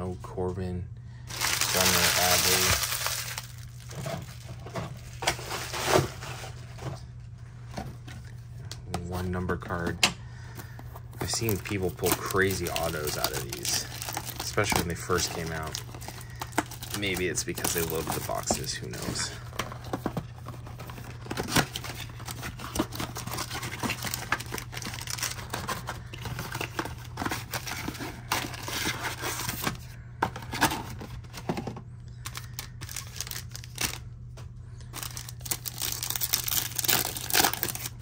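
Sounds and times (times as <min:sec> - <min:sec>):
foil wrappers crinkling: 0:01.2 - 0:06.8, 0:10.6 - 0:29.8, 0:32.2 - 0:34.0, 0:34.8 - 0:38.0
foil pack tearing open: 0:01.3 - 0:06.3, 0:11.2 - 0:19.4, 0:20.8 - 0:29.6, 0:32.2 - 0:34.0, 0:34.9 - 0:38.0.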